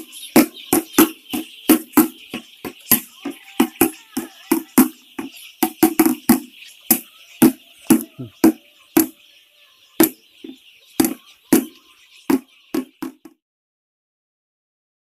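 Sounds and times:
sharp percussion hits: 0:00.0 - 0:09.1
chicks peeping: 0:00.0 - 0:13.4.

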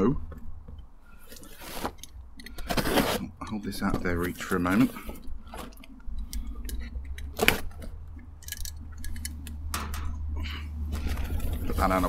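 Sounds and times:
blade cutting cardboard box: 0:02.7 - 0:03.3.

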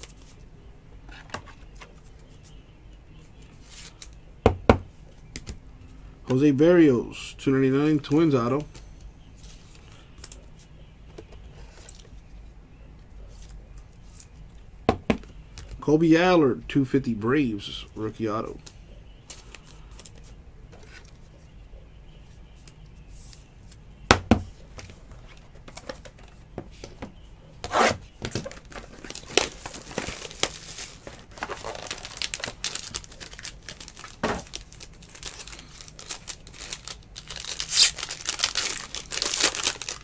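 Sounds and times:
foil wrapper crinkling and tearing: 0:28.6 - 0:40.0.

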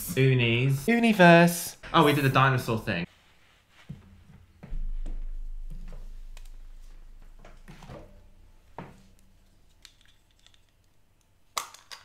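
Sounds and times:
low hum: 0:03.9 - 0:10.1
plastic toy pieces clicking: 0:09.8 - 0:12.0.

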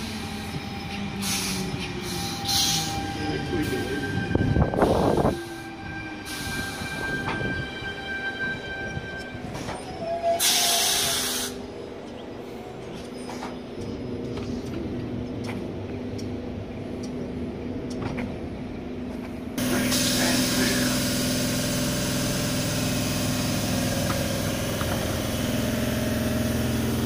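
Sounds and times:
electric train whine: 0:00.0 - 0:27.0
air hiss: 0:10.4 - 0:11.6, 0:19.6 - 0:23.9.

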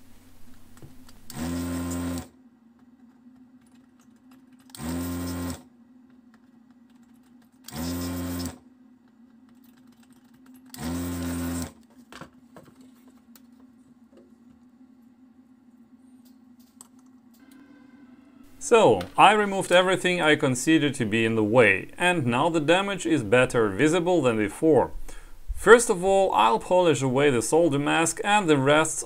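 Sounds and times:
desoldering gun vacuum pump: 0:00.8 - 0:02.3, 0:04.7 - 0:05.6, 0:07.6 - 0:08.6, 0:10.7 - 0:11.8.

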